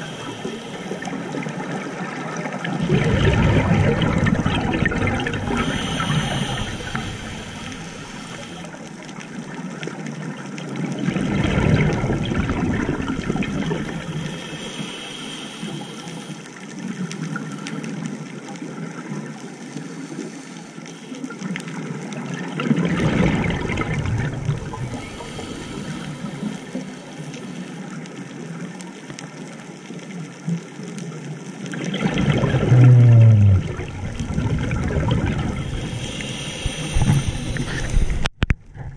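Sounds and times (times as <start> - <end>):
watery hiss: 0.0 - 9.1, 11.4 - 18.0, 19.6 - 21.8, 23.0 - 28.2, 31.8 - 38.3
diver exhaling bubbles: 2.6 - 8.7, 11.0 - 14.9, 22.5 - 26.8, 31.7 - 38.9.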